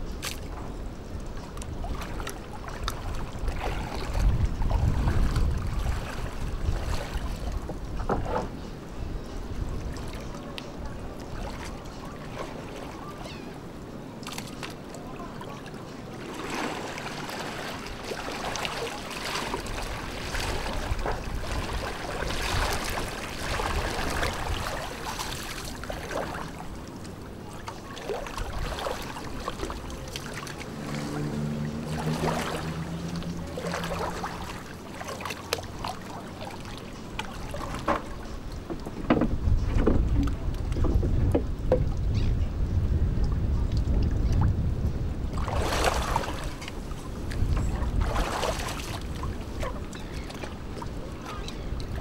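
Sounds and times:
water splashing and sloshing: 0.0 - 52.0.

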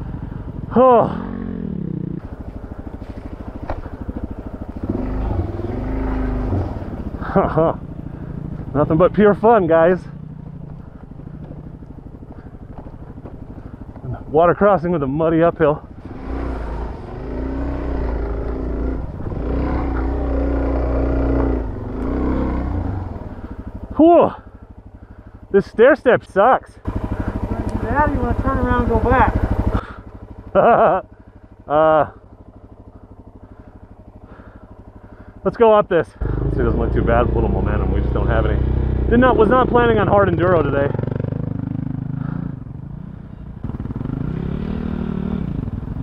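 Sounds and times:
motorcycle engine chugging: 0.0 - 46.0.

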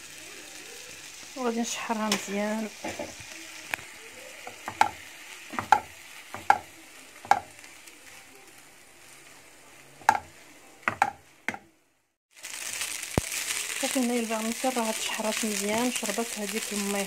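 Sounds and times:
food sizzling in pan: 0.0 - 11.5, 12.3 - 17.0
wooden spoon knocking pan: 4.6 - 7.5, 10.0 - 10.3, 10.9 - 11.7.

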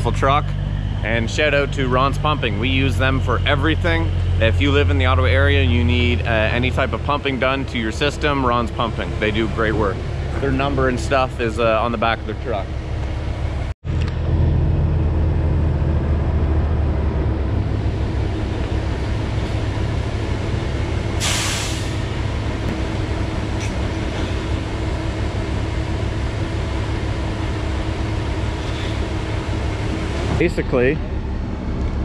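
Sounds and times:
diesel truck engine running: 0.0 - 32.0
air brakes hissing: 21.2 - 22.2, 28.6 - 29.2.

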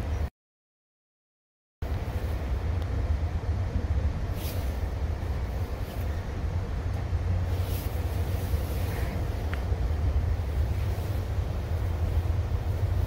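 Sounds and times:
train car rumbling on track: 0.0 - 0.3, 1.8 - 13.0
brief hisses: 4.3 - 4.8.

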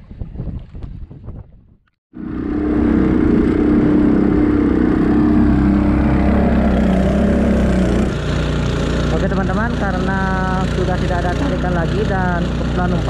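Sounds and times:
wind: 0.0 - 13.0
outboard motor running: 2.1 - 13.0
rushing water: 2.4 - 13.0.

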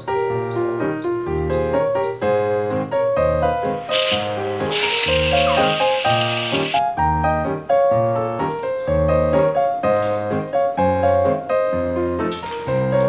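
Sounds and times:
piano music: 0.0 - 13.0
pressure cooker steam hissing: 3.8 - 6.8.

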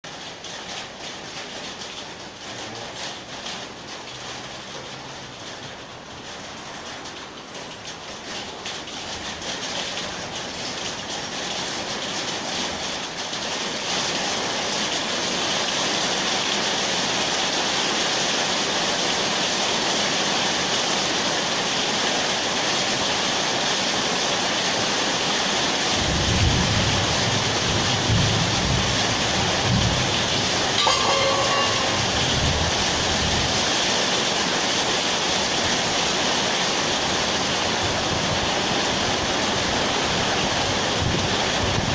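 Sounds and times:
steady rushing noise: 29.7 - 33.7
short beep: 30.8 - 32.6.

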